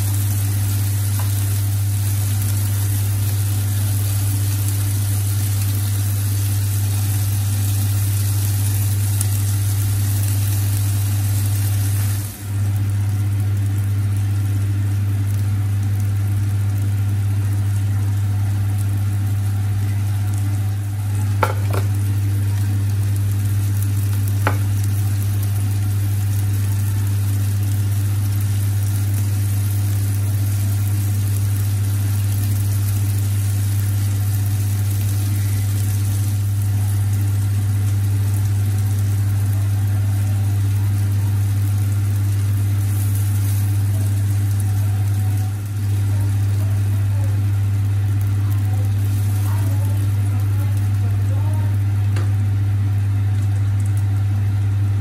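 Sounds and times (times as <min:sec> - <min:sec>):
burger patties sizzling on griddle: 0:00.0 - 0:55.0
loud steady low hum: 0:00.0 - 0:55.0.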